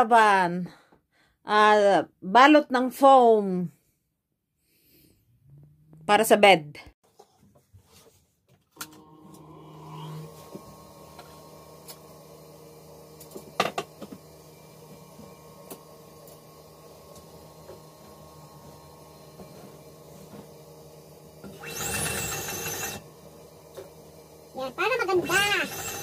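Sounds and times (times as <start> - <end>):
sewing machine motor humming: 8.8 - 20.2, 21.0 - 26.0.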